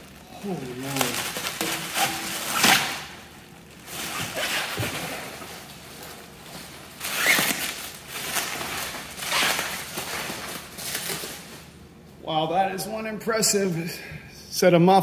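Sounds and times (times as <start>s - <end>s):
bubble wrap crinkling: 0.0s - 11.8s.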